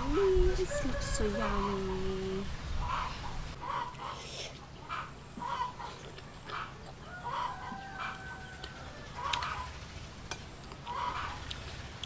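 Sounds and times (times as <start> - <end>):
chickens clucking: 2.8 - 9.8, 10.7 - 11.7.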